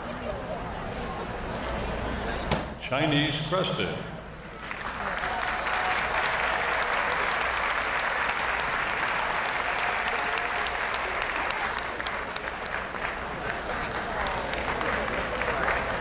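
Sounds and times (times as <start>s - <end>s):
audience applauding: 4.5s - 16.0s.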